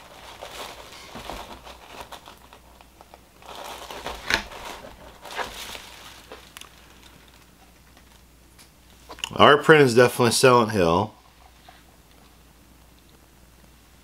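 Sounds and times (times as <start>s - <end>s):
packaging crinkling: 0.0s - 8.2s.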